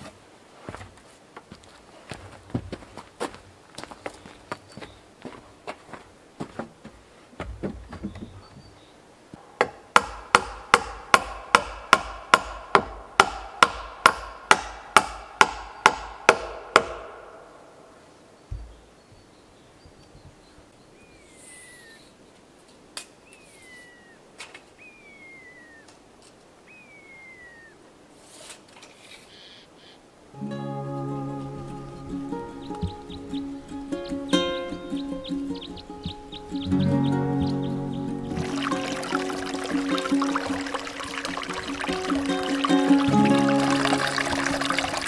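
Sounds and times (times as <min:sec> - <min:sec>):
hammer striking wood: 0:09.6 - 0:17.6
short falling whistles: 0:23.4 - 0:24.2, 0:24.8 - 0:25.9, 0:26.7 - 0:27.8.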